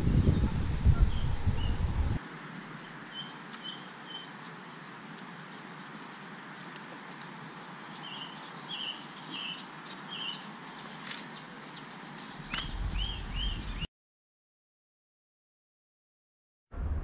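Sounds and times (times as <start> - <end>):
low rumble: 0.0 - 2.2, 16.7 - 17.0
outdoor background hiss: 0.0 - 13.9
sharp click: 12.5 - 12.8.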